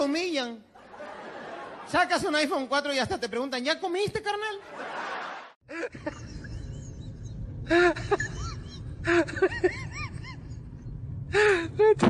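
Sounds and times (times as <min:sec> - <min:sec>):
steady low rumble: 0:06.0 - 0:12.0.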